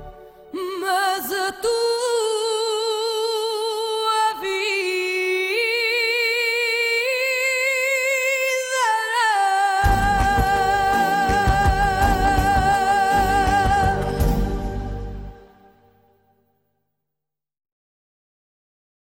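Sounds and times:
woman singing wordless notes: 0.4s - 14.8s.

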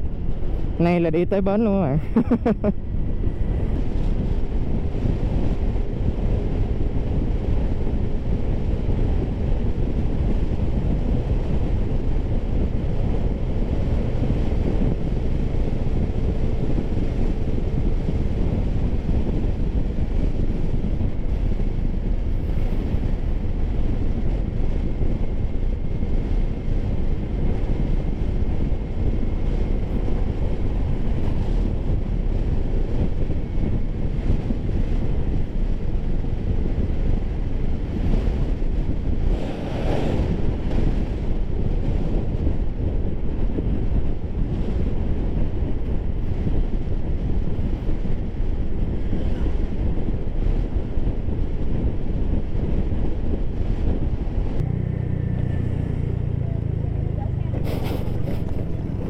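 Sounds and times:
wind buffeting microphone: 0.0s - 59.0s
faint scooter engine hum: 54.6s - 59.0s.

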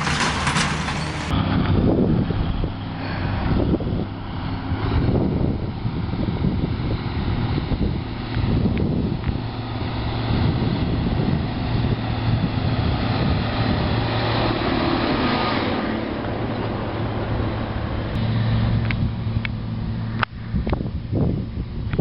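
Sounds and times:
tyre and wagon noise: 0.0s - 1.6s
tractor diesel engine drone: 0.0s - 22.0s.

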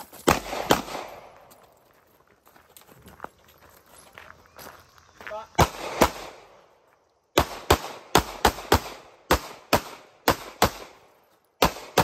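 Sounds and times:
pistol shots with echo: 0.2s - 1.4s, 5.6s - 6.5s, 7.4s - 11.0s, 11.6s - 12.0s.

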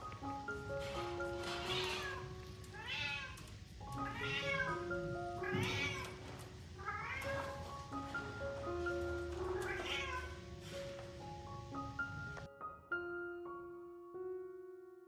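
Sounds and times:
background music of held notes: 0.0s - 15.0s
kittens mewing: 4.0s - 4.8s.

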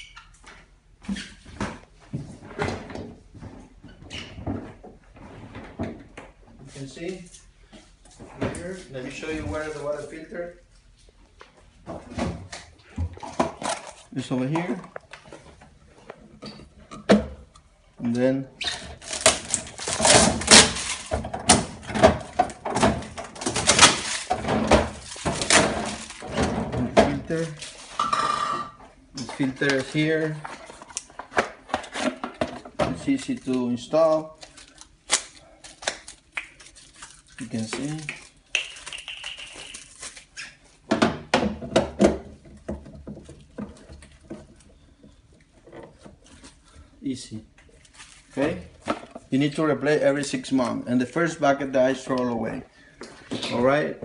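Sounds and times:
plastic parts knocking and clattering: 11.9s - 15.6s, 18.9s - 28.5s, 29.2s - 34.7s, 40.9s - 46.2s.

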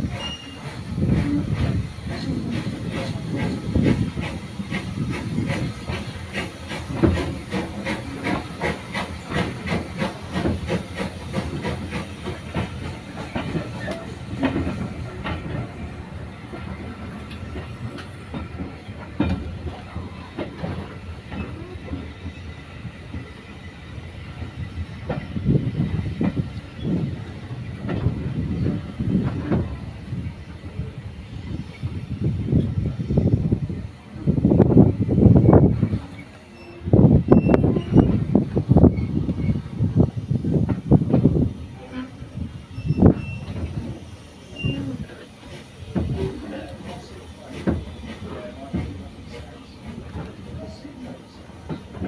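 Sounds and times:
train coach rushing hiss: 0.0s - 16.5s.

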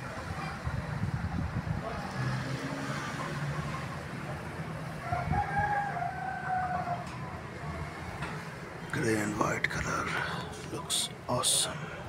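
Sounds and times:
rooster crowing: 5.0s - 7.3s.

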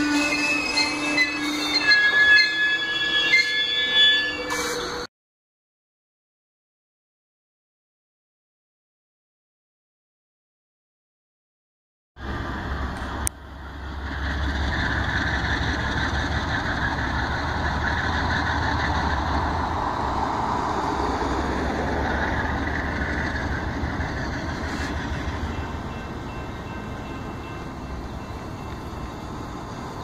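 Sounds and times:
diesel locomotive engine drone: 0.0s - 5.1s, 12.2s - 30.0s.

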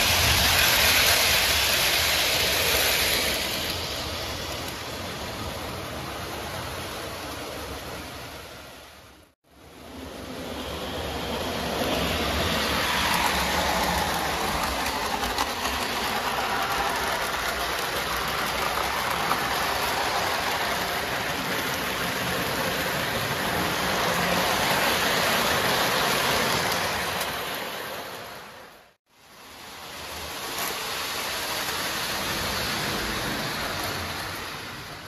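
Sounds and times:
model train rumbling on track: 0.0s - 9.0s, 9.6s - 35.0s.

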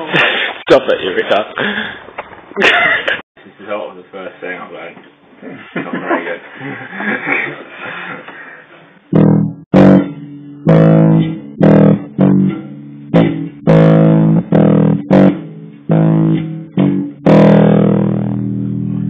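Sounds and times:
plucked electric bass notes: 9.1s - 19.0s.

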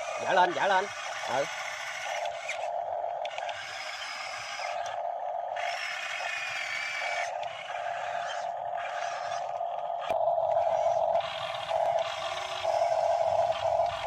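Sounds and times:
electric motors whining: 0.0s - 14.0s.

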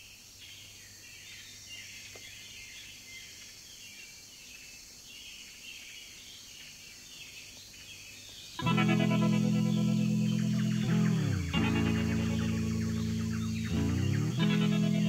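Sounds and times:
birds chirping: 5.2s - 15.0s
cassette hiss: 8.6s - 15.0s
low hum: 8.6s - 15.0s.

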